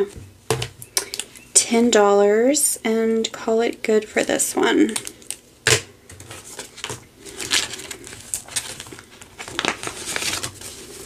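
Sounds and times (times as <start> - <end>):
banknotes and plastic pouch rustling: 4.8 - 11.0.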